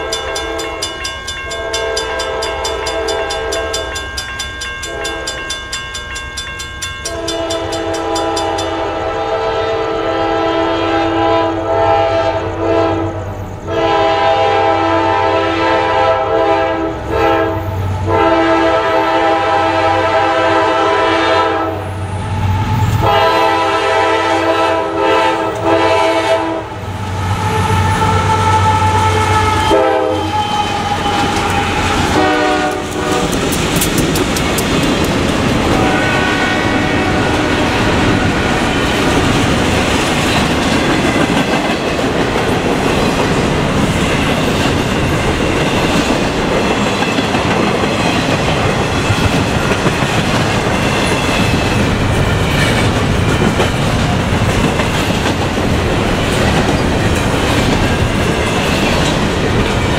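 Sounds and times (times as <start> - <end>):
train wheels rumbling on rail: 0.0 - 59.9
locomotive air horn: 7.1 - 22.0, 23.0 - 33.5, 35.7 - 38.3.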